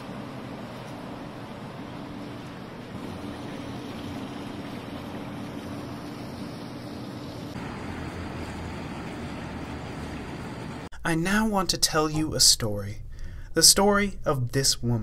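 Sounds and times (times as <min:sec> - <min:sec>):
low rumble of traffic: 0:00.0 - 0:10.9.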